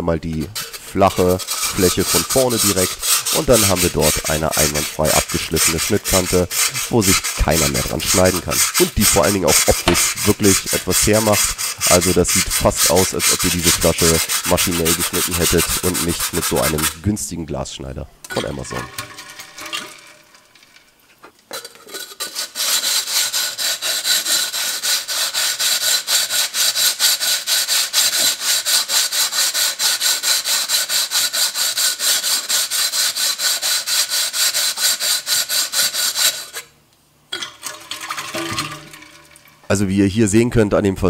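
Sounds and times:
sandpaper rubbing glass: 0.3 - 17.0, 21.9 - 36.7.

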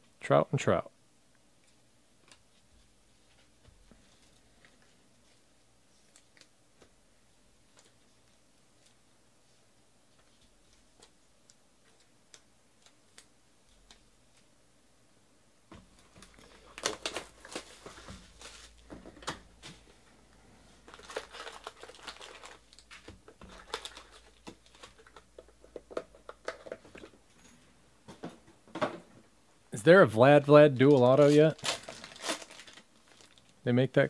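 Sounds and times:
plastic wrapping crinkling and tearing: 15.9 - 18.9, 20.8 - 26.6, 30.7 - 33.6.

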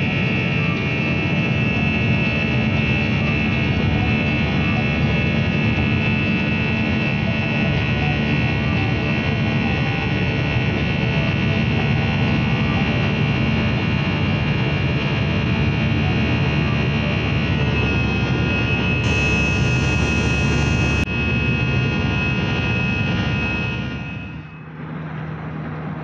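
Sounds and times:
high engine whine: 0.0 - 25.5
jet airliner cabin noise: 17.8 - 21.1.

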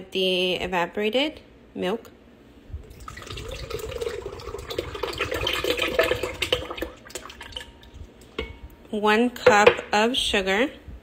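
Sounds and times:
milk pouring into blender jar: 2.9 - 7.8.

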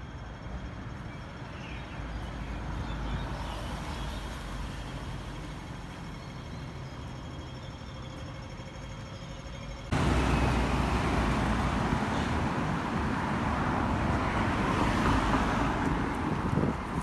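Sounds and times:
passing vehicle rumble: 8.4 - 17.0.

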